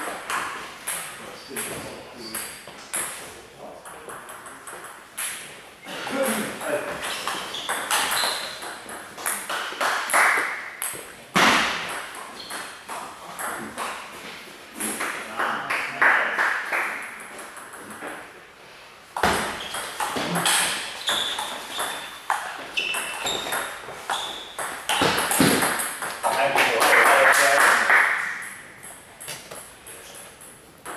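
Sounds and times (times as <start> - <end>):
ping pong ball hitting bats: 0.0 - 5.6, 6.6 - 14.2, 14.8 - 18.3, 19.2 - 30.9
ping pong ball bouncing on table: 19.2 - 26.4.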